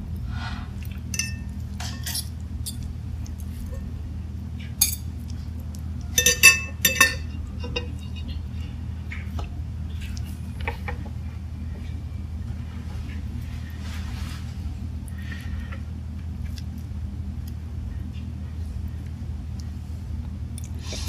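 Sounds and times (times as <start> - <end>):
low hum: 0.0 - 21.0
fork clinking on ceramic plate: 6.2 - 8.3.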